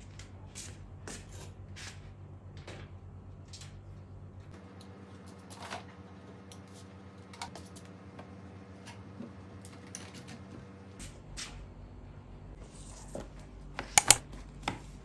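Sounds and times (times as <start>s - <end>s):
small objects clicking and tapping: 13.8s - 14.2s.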